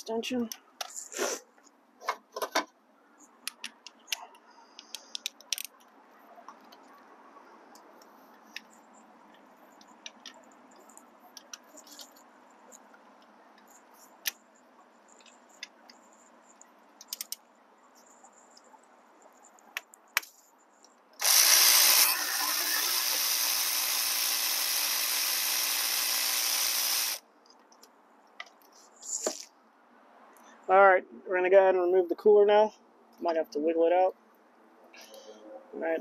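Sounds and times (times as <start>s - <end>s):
electric ratchet whirring: 21.2s - 27.2s.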